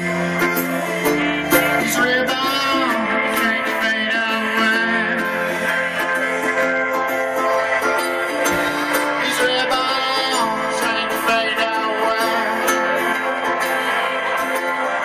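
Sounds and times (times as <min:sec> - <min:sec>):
live band playing: 0:00.0 - 0:15.0.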